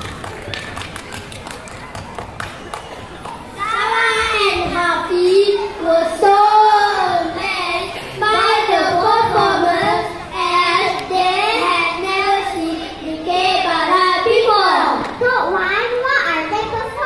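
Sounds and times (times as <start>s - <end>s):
children singing together: 3.6s - 15.1s.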